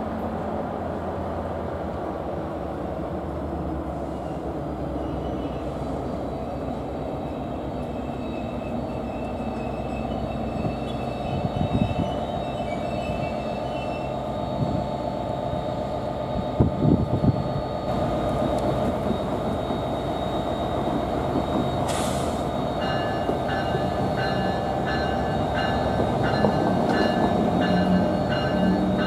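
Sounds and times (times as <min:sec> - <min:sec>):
train wheels rumbling on rail: 0:00.0 - 0:29.0
bell ringing: 0:22.7 - 0:29.0.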